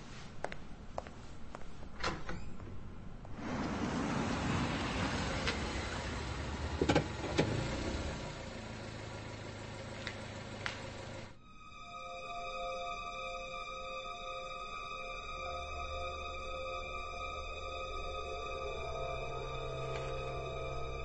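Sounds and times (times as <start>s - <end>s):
car engine and tyres: 2.6s - 11.4s.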